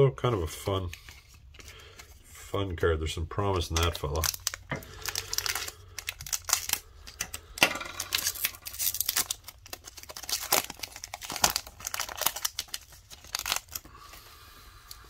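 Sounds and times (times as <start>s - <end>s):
foil wrapper tearing and crinkling: 3.8s - 15.0s.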